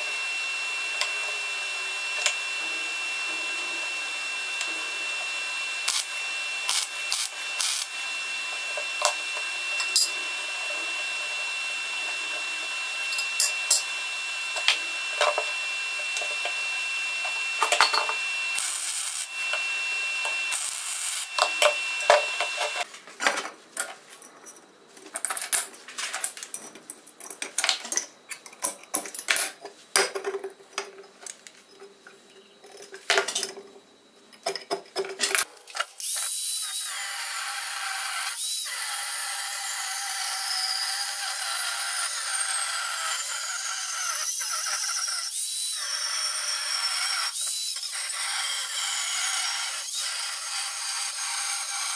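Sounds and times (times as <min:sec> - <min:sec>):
angle grinder cutting steel: 0:00.0 - 0:22.9, 0:35.9 - 0:51.9.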